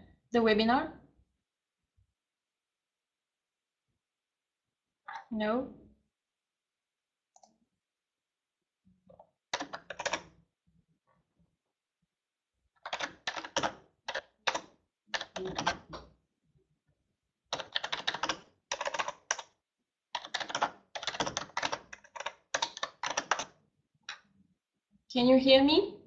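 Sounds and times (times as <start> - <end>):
typing on computer keyboard: 9.5 - 10.3, 12.8 - 16.1, 17.5 - 19.5, 20.2 - 24.2.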